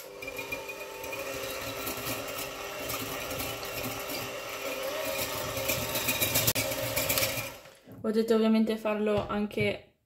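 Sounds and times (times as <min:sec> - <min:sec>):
electric hand mixer whisking: 0:00.0 - 0:08.0.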